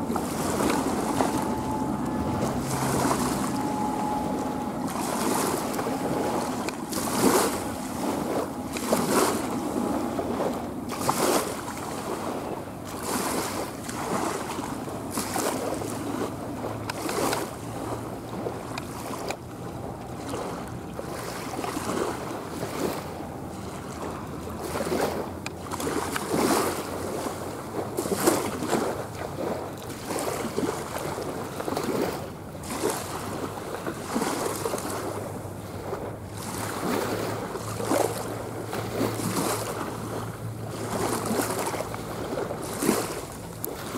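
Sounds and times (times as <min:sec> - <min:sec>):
jet engine roar: 0:00.0 - 0:14.2
wind buffeting microphone: 0:00.0 - 0:43.9.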